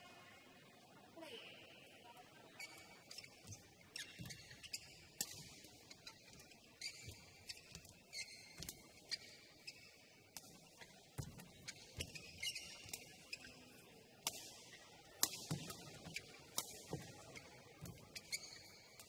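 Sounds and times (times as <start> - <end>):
shoes squeaking on court: 2.6 - 13.9, 15.6 - 19.0.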